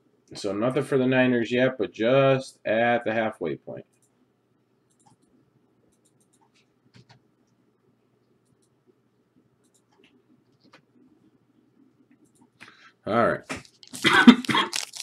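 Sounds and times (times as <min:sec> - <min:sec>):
trading cards being handled: 0:13.5 - 0:15.0.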